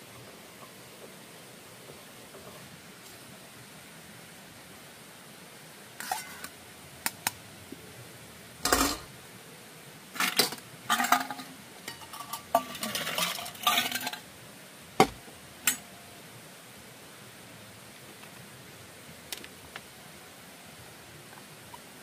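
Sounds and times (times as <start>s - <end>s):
cookware and cutlery clinking: 6.0s - 6.5s, 8.6s - 9.1s, 10.2s - 14.2s, 15.0s - 15.9s.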